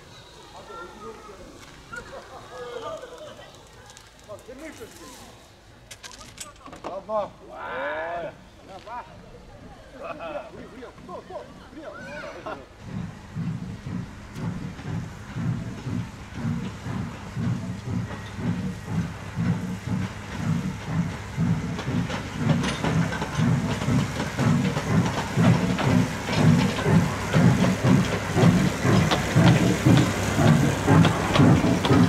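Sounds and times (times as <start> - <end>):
wheels clicking over rail joints: 0.5 - 7.0, 12.8 - 32.0
locomotive chuffing: 12.3 - 32.0.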